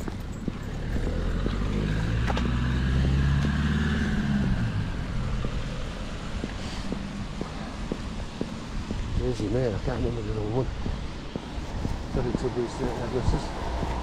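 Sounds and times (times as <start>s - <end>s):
footsteps: 0.0s - 3.8s, 5.2s - 14.0s
vehicle engine driving past: 0.6s - 7.8s.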